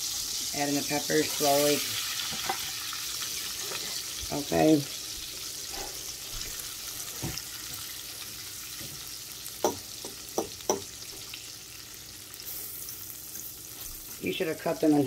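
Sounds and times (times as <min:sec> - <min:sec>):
peppers sizzling in oil: 0:00.0 - 0:15.0
sharp taps in pan: 0:09.6 - 0:10.9.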